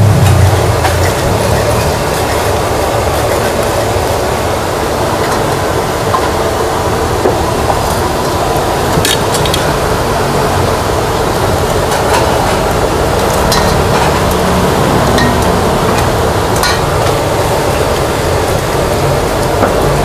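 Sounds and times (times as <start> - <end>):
low rumble: 0.0 - 3.4
loud steady hiss: 0.0 - 20.0.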